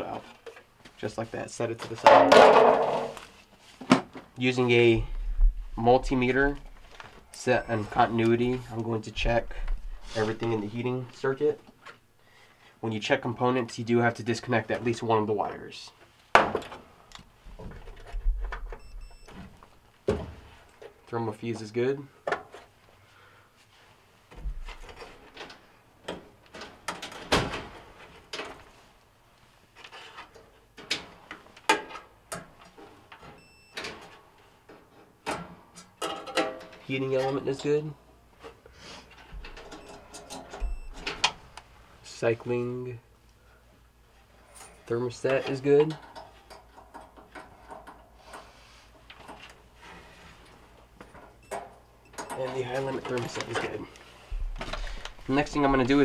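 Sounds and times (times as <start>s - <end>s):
multimeter beep: 7.4s - 8.1s, 18.8s - 19.4s, 33.4s - 33.8s, 39.7s - 41.1s.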